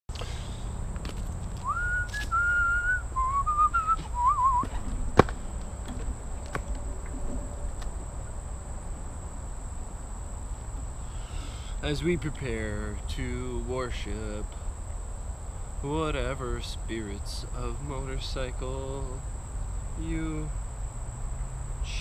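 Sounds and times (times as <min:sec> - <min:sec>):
low outdoor rumble: 0:00.1 - 0:22.0
person whistling a tune: 0:01.6 - 0:04.7.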